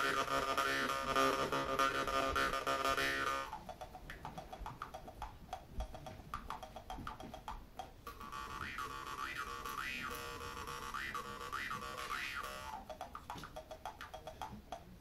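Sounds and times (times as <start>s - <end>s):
jaw harp buzzing drone: 0.0s - 3.6s, 8.1s - 12.9s.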